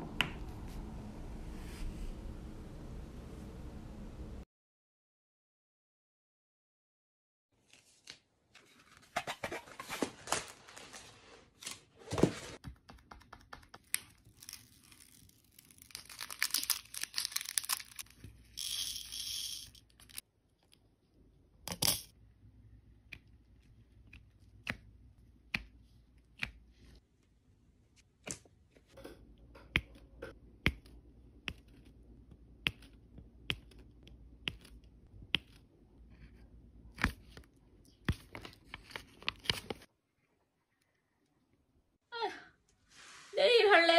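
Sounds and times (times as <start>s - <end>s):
plastic crinkling and rustling: 14.3s - 18.2s.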